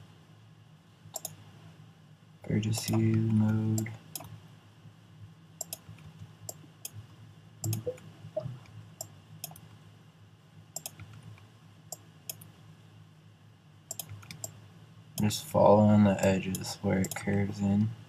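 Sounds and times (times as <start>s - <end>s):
faint low hum: 0.0s - 18.0s
computer mouse clicking: 1.2s - 1.4s, 2.7s - 4.3s, 5.6s - 7.0s, 7.6s - 9.7s, 10.8s - 12.5s, 13.9s - 14.6s.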